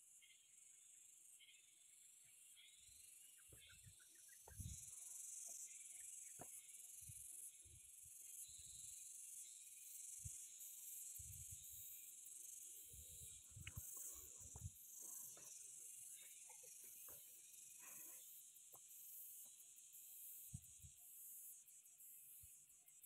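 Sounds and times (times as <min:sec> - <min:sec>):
faint insect chorus: 0:00.0 - 0:23.0.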